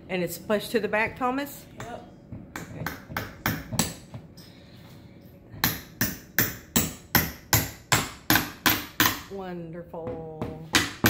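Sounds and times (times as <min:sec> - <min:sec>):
hammer tapping nails: 0:01.8 - 0:04.2, 0:05.6 - 0:09.3.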